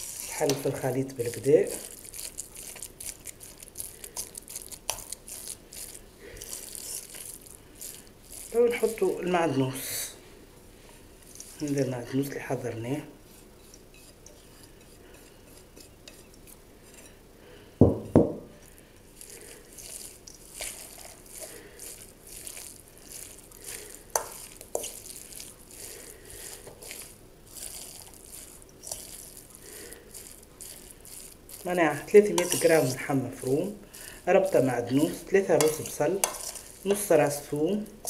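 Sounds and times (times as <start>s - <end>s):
hands kneading wet meat: 0.0s - 10.1s, 18.6s - 38.0s.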